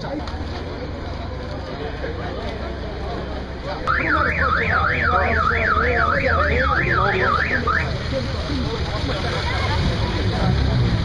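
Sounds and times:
low engine rumble: 0:00.0 - 0:11.0
electronic siren wailing: 0:03.9 - 0:08.0.

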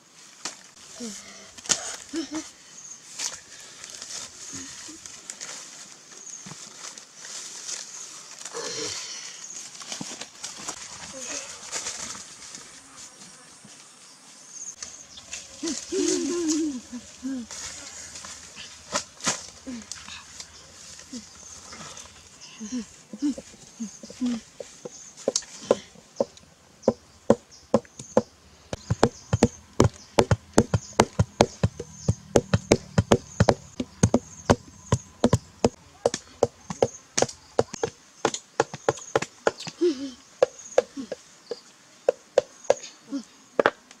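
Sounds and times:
insects buzzing: 0:00.7 - 0:44.0
knife chopping wood: 0:25.3 - 0:39.7.

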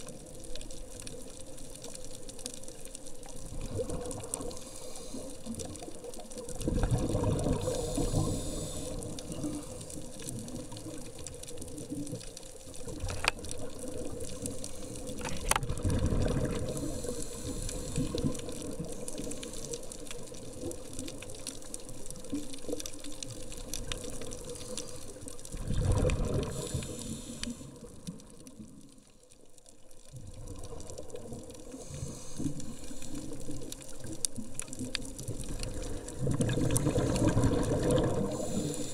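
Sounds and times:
steady underwater hum: 0:00.0 - 0:38.9
diver exhaling bubbles underwater: 0:06.5 - 0:09.6, 0:15.2 - 0:18.7, 0:25.5 - 0:27.0, 0:35.2 - 0:38.9.

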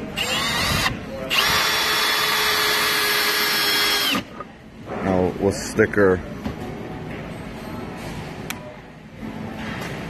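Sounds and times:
drill driving screw into wood: 0:00.2 - 0:04.3.

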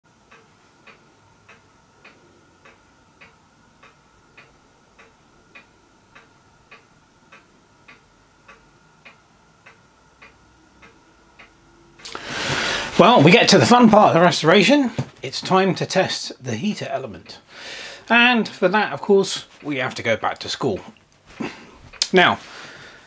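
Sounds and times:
clock-like ticking: 0:00.1 - 0:12.2, 0:18.0 - 0:21.0
faint high hum: 0:00.1 - 0:23.0.

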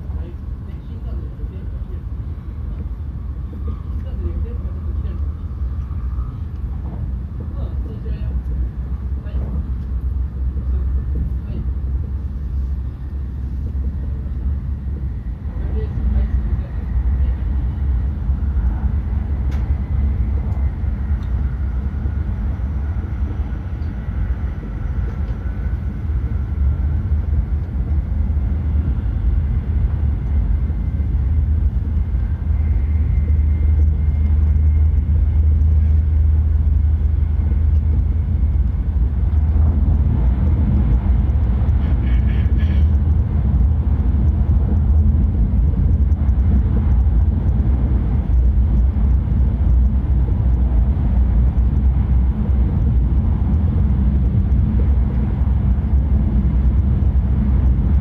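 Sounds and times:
train cabin deep rumble: 0:00.0 - 0:58.0.

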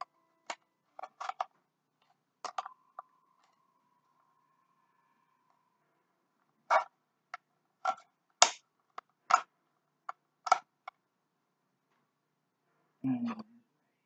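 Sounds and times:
hard plastic pieces clicking: 0:00.0 - 0:01.6, 0:02.4 - 0:02.7, 0:07.8 - 0:11.0.

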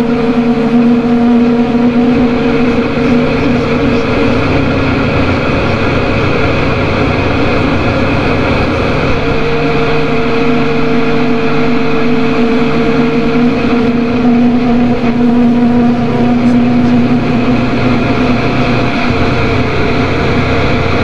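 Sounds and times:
drone noise music: 0:00.0 - 0:21.0.

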